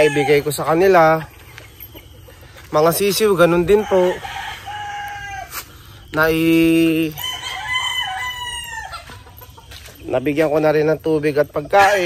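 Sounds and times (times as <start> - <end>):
rooster crowing loudly: 0.0 - 0.6, 3.6 - 5.6, 7.1 - 9.2
chickens calling: 0.0 - 12.0.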